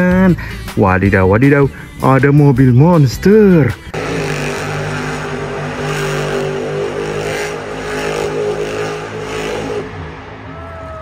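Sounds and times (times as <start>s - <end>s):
truck engine revving: 3.7s - 11.0s.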